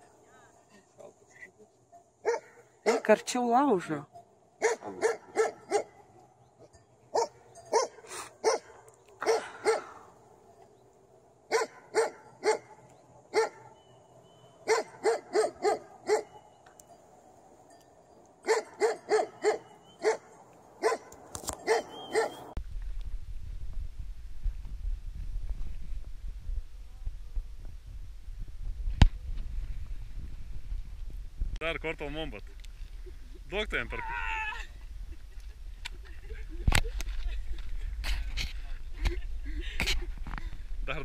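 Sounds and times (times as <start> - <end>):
dog barking: 2.2 - 3.1, 4.6 - 6.1, 7.1 - 10.0, 11.5 - 13.8, 14.6 - 16.4, 18.4 - 22.5
wind rumble on microphone: 22.6 - 31.6, 34.2 - 41.0.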